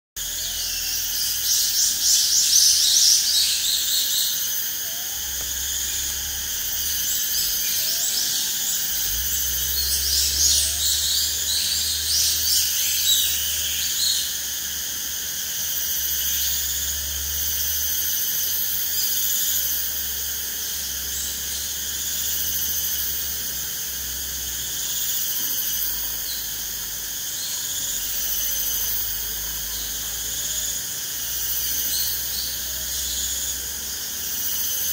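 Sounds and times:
insect chorus: 0.2 - 34.9.

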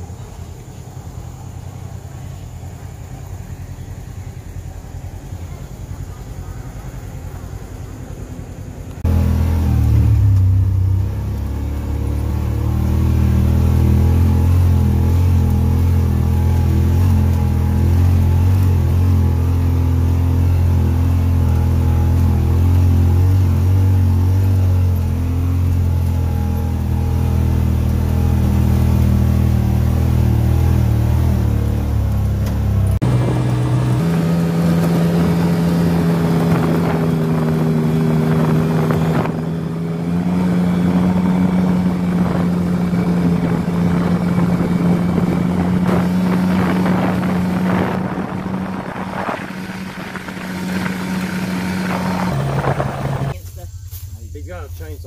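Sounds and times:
utility vehicle engine running: 0.0 - 55.0.

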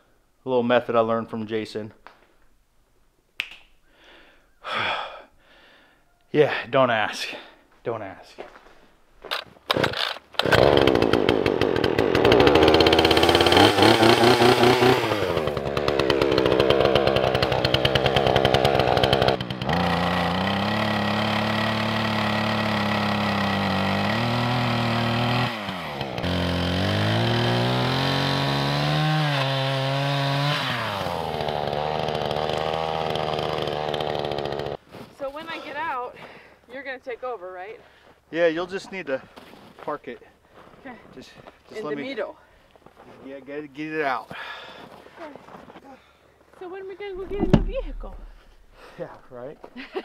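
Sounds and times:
chainsaw cutting trees: 9.3 - 34.8.

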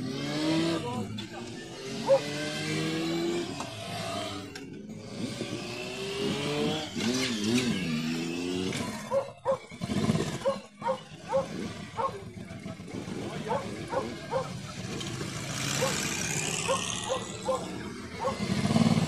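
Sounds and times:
motorcycles accelerating past: 0.0 - 19.0
dog barking: 2.0 - 2.3, 9.1 - 9.7, 10.4 - 12.2, 13.5 - 14.6, 15.8 - 16.0, 16.6 - 18.4.

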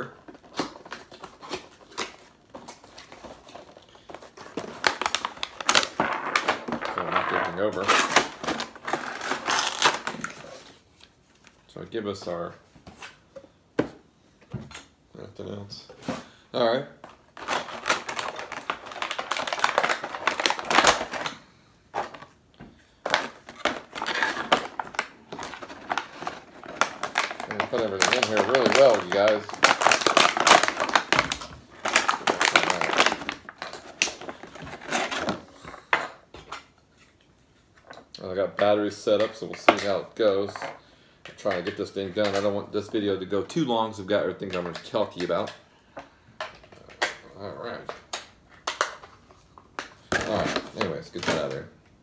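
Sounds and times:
plastic parts clicking and rustling: 23.0 - 36.7.

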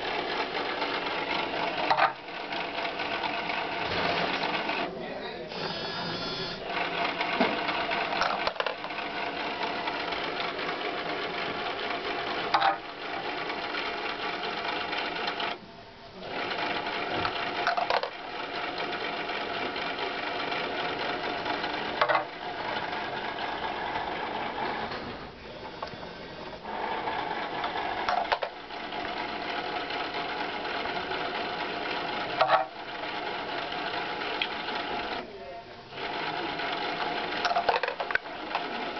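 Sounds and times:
small electric motor whirring: 5.5 - 15.6.

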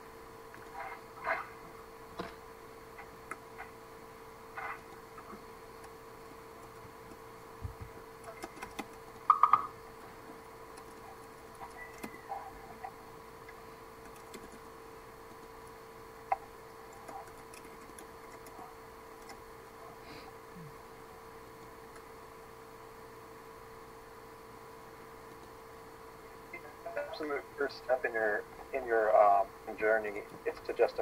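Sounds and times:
steady electrical hum: 0.0 - 31.0
keyboard and mouse clicks: 6.6 - 9.7, 10.7 - 12.9, 13.5 - 14.7, 16.3 - 19.4.

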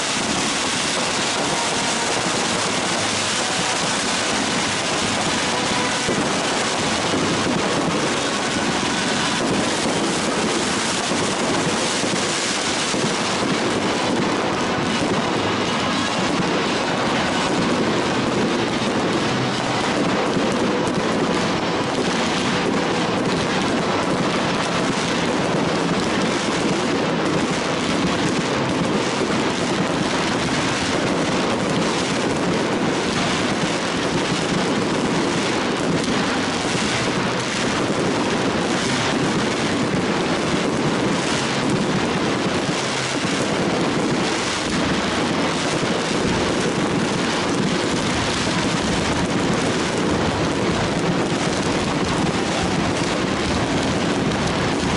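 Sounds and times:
fireworks bursting: 0.0 - 54.9.

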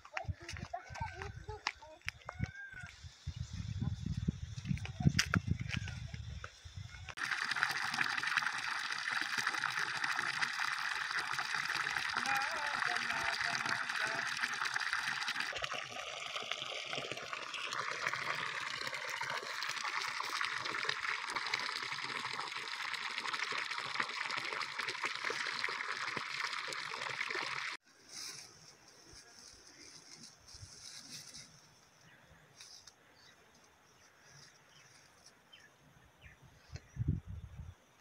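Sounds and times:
water splashing into pond: 7.1 - 27.8.

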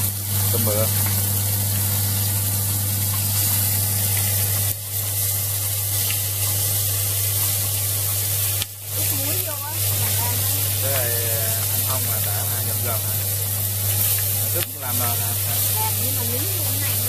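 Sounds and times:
shrimp sizzling in hot oil: 0.0 - 17.0
steady low hum: 0.0 - 17.0.

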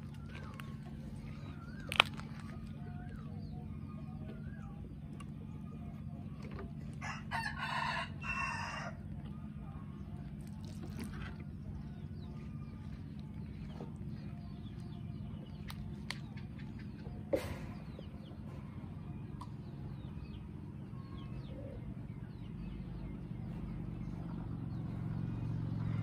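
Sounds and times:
steady low hum: 0.0 - 26.0
rooster crowing: 7.0 - 9.0.

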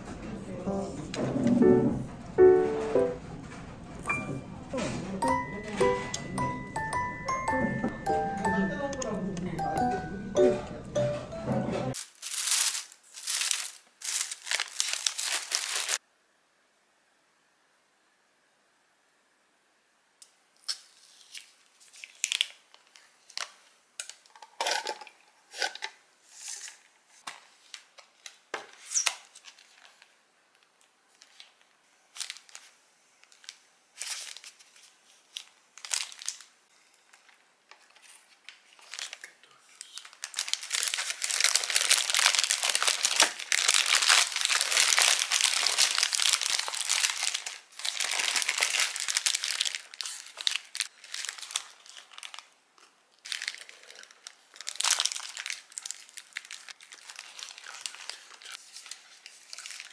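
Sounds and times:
paper packaging rustling: 11.9 - 16.0, 20.7 - 25.0, 25.6 - 30.2, 31.1 - 52.6, 53.2 - 59.9
paper wrapper crinkling: 12.0 - 16.0, 20.6 - 25.0, 26.4 - 59.9.

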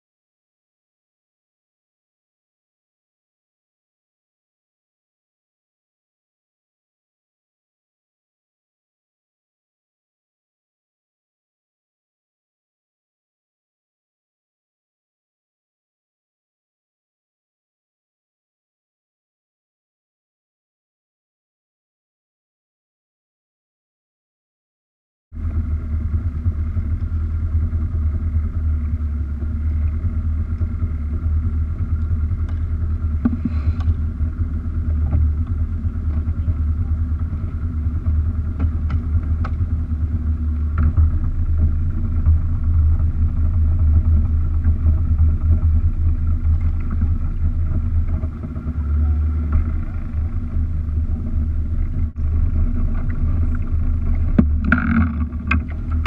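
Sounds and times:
boat engine rumbling: 25.4 - 56.0.

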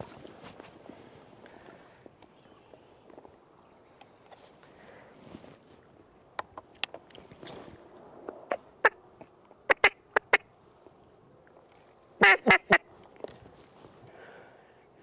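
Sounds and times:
duck quacks: 12.2 - 12.8.

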